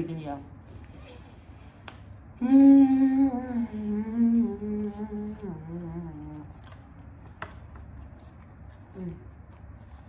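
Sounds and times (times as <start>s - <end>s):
woman humming: 2.4s - 6.6s.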